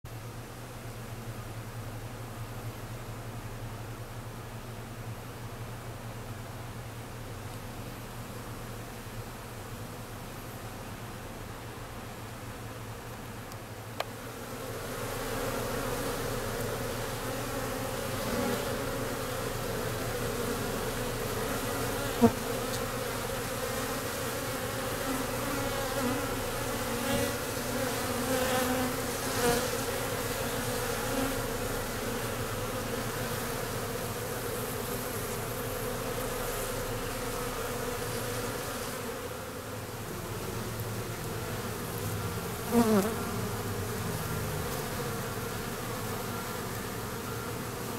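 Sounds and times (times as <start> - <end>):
bees buzzing: 14.0 - 47.9
single bee droning past: 14.0 - 47.9.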